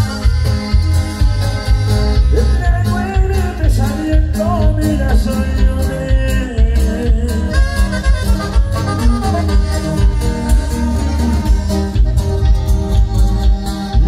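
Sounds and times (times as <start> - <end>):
live band music: 0.0 - 14.0
steady bass beat: 0.0 - 14.0.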